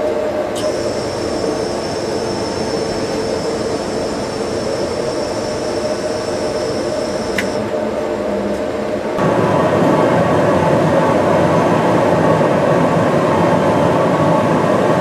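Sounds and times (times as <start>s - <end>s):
roar of gas burners: 0.6s - 7.6s
thin high whistle: 0.6s - 7.6s
click: 7.3s - 7.6s.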